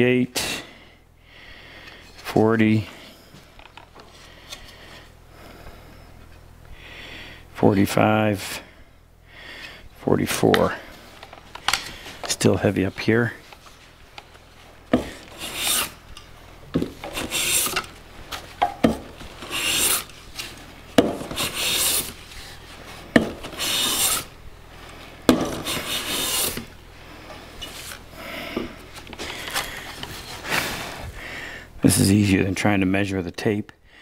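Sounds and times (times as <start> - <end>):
plane cutting wood shaving: 14.9 - 16.0, 16.7 - 24.4, 25.3 - 26.7.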